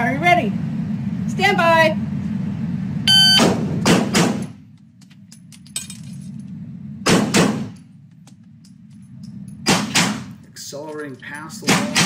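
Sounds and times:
shot timer beep: 0:03.1 - 0:03.5
pistol shots: 0:03.4 - 0:04.6, 0:07.0 - 0:07.8, 0:09.6 - 0:10.4.

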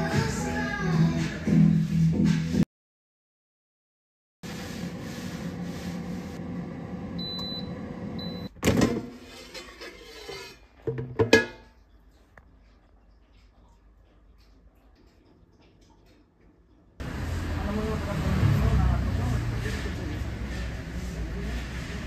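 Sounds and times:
air fryer fan hum: 0:04.6 - 0:08.8, 0:17.0 - 0:19.7.

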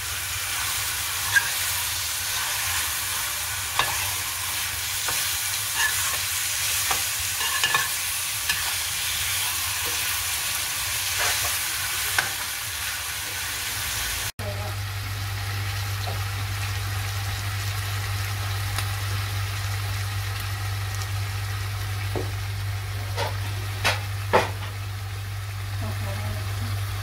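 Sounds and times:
chicken sizzling in oil: 0:00.0 - 0:27.0
metal spoon scraping pan: 0:01.1 - 0:01.8, 0:03.7 - 0:10.1.

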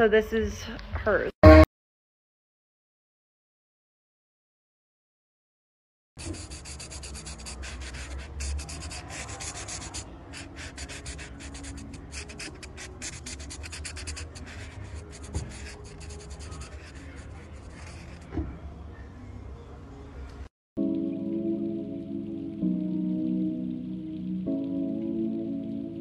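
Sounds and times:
marker scratching on tile: 0:06.2 - 0:18.3.

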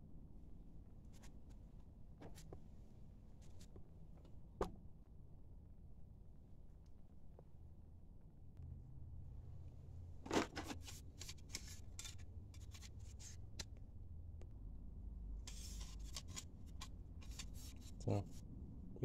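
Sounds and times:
low steady hum: 0:00.0 - 0:19.0
parts rubbing and scraping: 0:10.2 - 0:13.6, 0:15.5 - 0:18.4.

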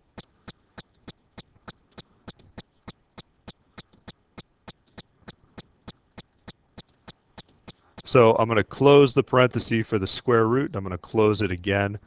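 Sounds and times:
faint clicks: 0:00.0 - 0:08.2.

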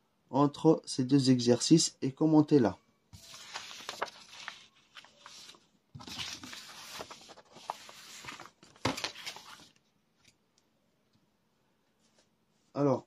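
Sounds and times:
paper rustling and sliding: 0:03.1 - 0:09.8
paper crackle: 0:03.2 - 0:09.8.

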